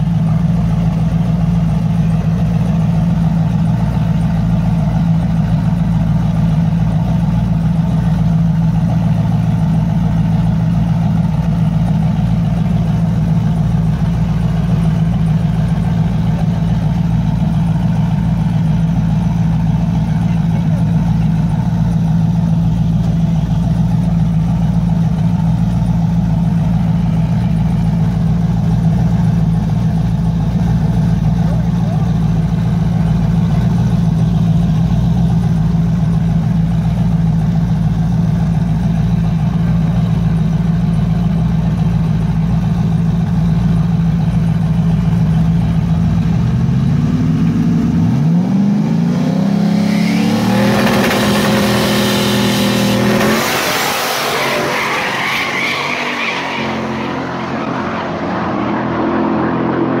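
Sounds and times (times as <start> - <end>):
car engines idling loudly: 0.0 - 60.0
cars accelerating hard: 46.9 - 60.0.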